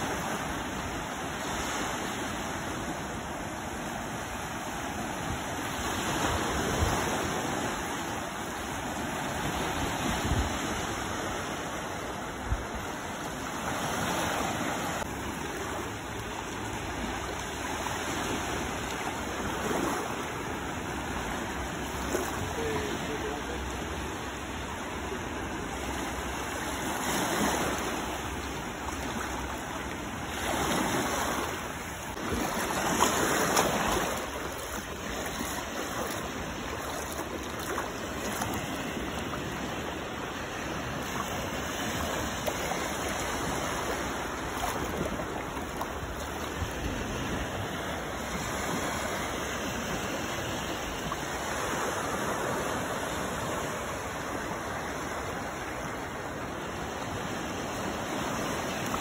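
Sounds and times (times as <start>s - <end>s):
small waves washing on beach: 0.0s - 59.0s.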